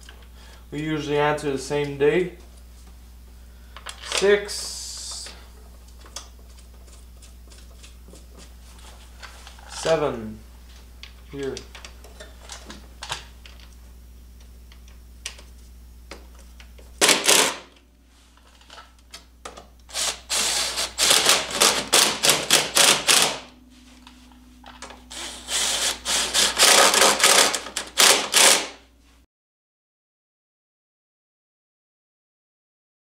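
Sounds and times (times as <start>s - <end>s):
cordless power driver running: 16.1s - 17.8s, 19.6s - 28.8s.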